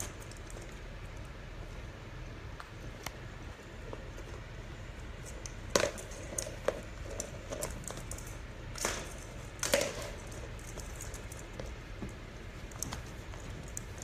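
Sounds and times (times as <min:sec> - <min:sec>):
ball toy and paws tapping: 0:05.2 - 0:14.0.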